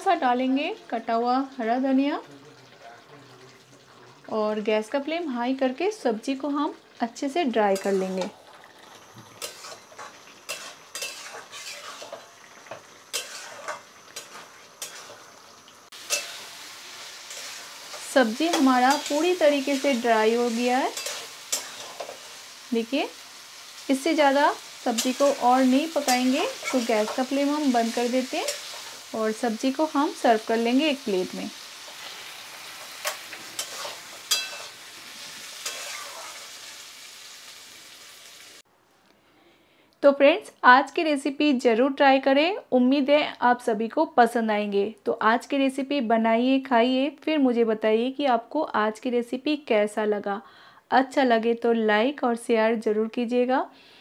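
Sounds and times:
pan sizzling: 0.0 - 38.7
metal spatula scraping pan: 7.7 - 8.3, 9.2 - 15.3, 16.0 - 22.6, 24.6 - 29.1, 31.8 - 36.6.

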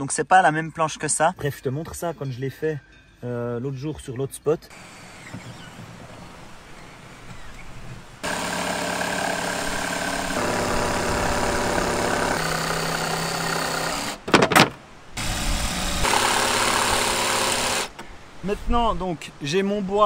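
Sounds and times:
drill boring into wood: 8.2 - 14.3, 15.2 - 18.0
jigsaw sawing plywood: 8.2 - 18.0
loud knocks: 10.4 - 14.8.

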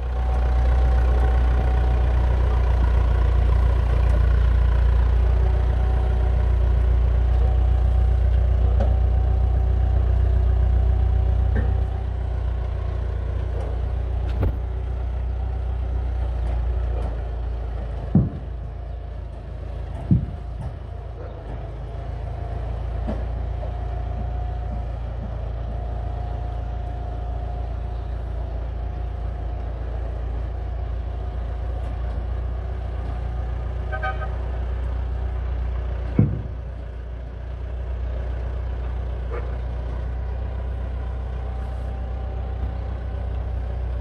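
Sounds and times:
vehicle engine running: 0.0 - 44.0
sharp thump: 20.0 - 20.8, 36.1 - 36.6.

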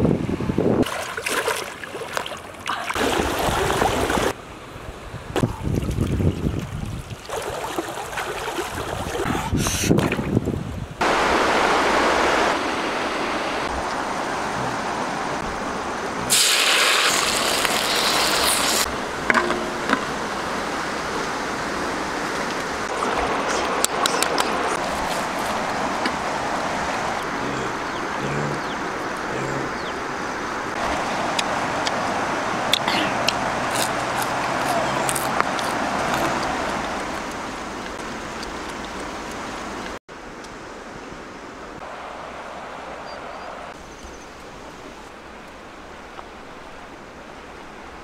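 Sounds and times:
wind buffeting microphone: 0.0 - 0.9, 3.1 - 7.3, 8.6 - 16.3
river water rushing over shallows: 0.8 - 9.3, 11.0 - 48.0.

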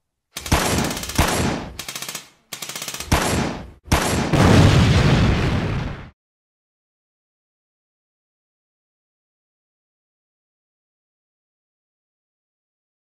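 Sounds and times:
machine-gun fire: 0.4 - 5.6.

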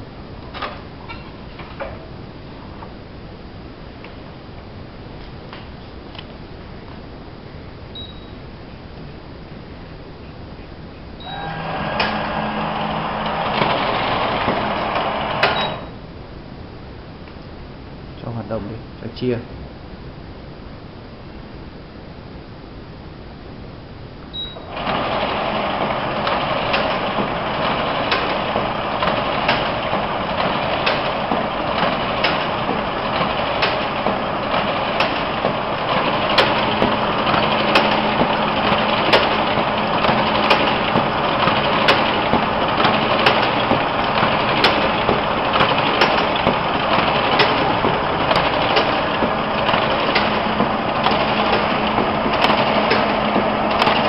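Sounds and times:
low steady hum: 0.0 - 15.0
paper collator whirring and clicking: 11.4 - 15.8, 24.7 - 54.0.

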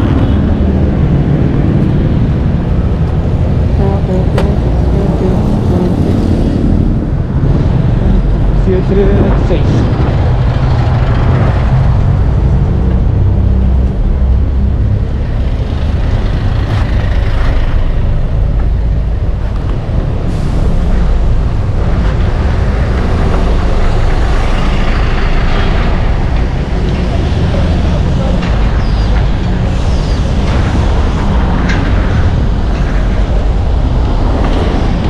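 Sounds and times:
road traffic rumble: 0.0 - 35.0.

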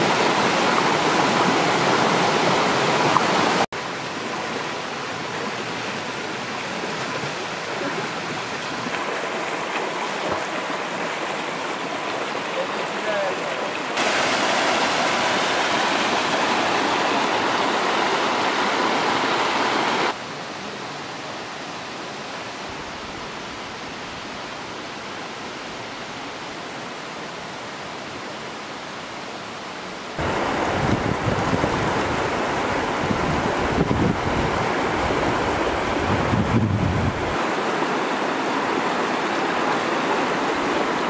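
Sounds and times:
flowing river: 0.0 - 41.0
waterfall over rocks: 0.0 - 41.0
wind on microphone: 30.2 - 37.4.

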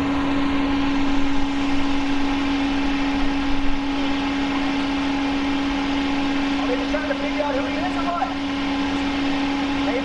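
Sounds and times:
steady machine hum: 0.0 - 10.0.

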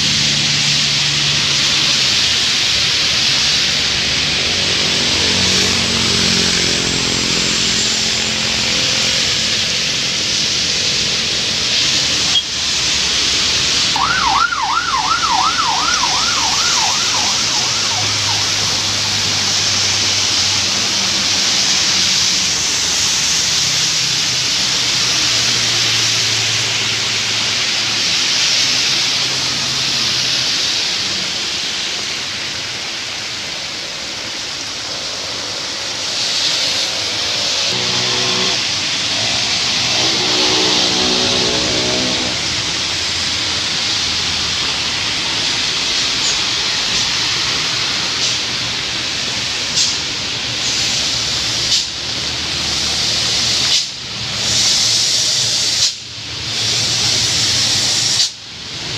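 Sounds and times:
low engine drone: 0.0 - 58.0
heavy rain: 0.0 - 58.9
tyres hissing on wet road: 0.0 - 58.9
warbling siren: 13.9 - 20.4, 37.6 - 42.9.

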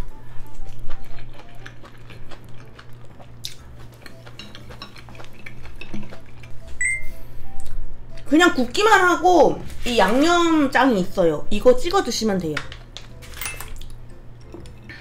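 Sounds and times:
close chewing of chewy meat: 0.2 - 6.7.

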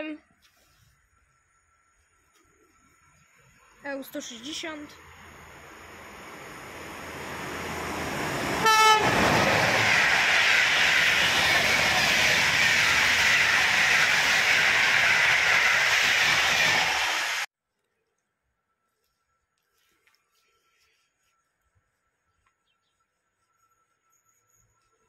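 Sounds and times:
train passing at speed: 3.5 - 17.5
train horn blast: 8.6 - 9.3.

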